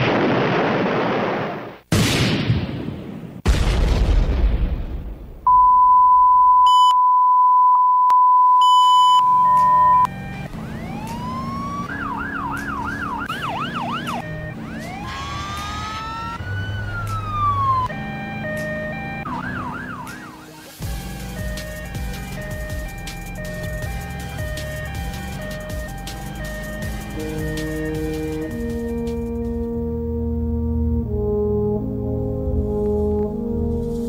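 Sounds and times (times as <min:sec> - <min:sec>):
loud steady high beep: 0:05.5 - 0:10.1
emergency sirens wailing: 0:09.2 - 0:33.8.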